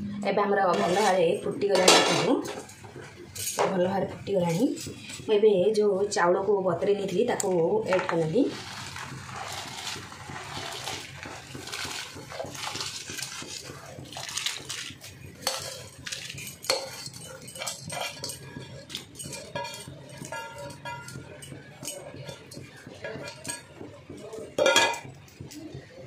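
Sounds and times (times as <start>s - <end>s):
metal spoon scraping a pot: 0.7s - 3.6s, 7.9s - 23.7s.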